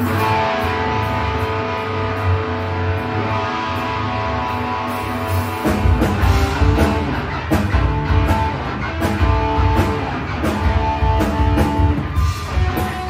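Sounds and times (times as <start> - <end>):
electric guitar: 0.0 - 13.0
rock band playing: 0.0 - 13.0.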